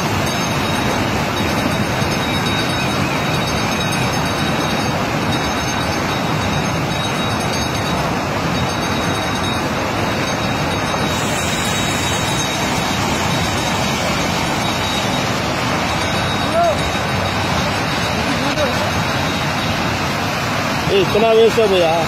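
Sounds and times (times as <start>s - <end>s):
water gushing into channel: 0.0s - 22.0s.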